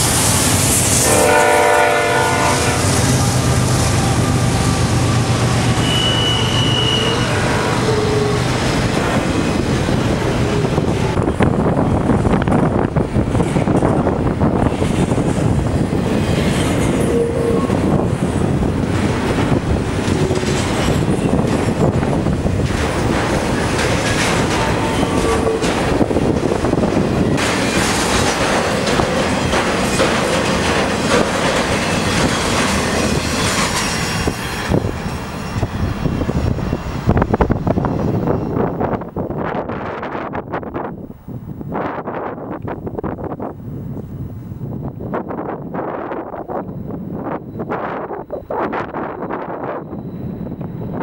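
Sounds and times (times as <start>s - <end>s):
diesel locomotives droning: 0.0s - 39.4s
freight cars rolling on rails: 0.0s - 40.9s
faint wheel squeals: 5.8s - 7.3s
wheels clicking over rail joints: 18.9s - 34.4s.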